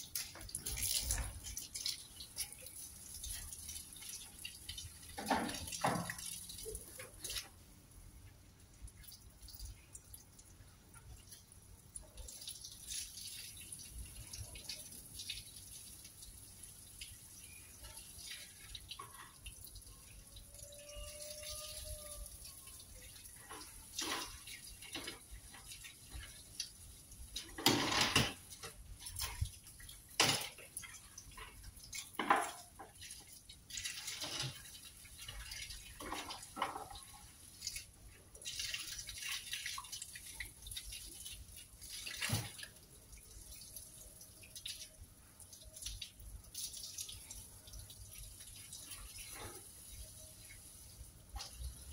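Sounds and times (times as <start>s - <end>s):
hose water splashing on carpet: 0.0s - 7.6s, 28.4s - 51.9s.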